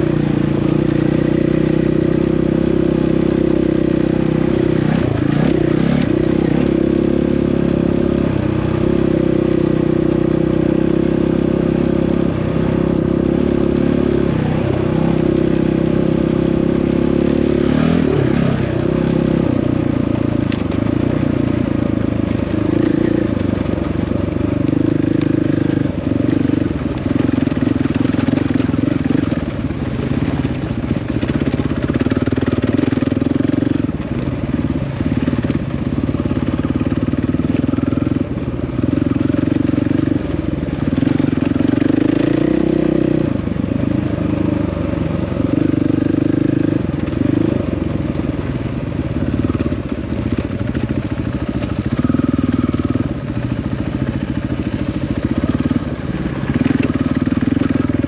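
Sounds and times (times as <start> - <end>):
dirt bike engine revving: 0.0 - 30.5, 40.9 - 47.7, 50.7 - 58.0.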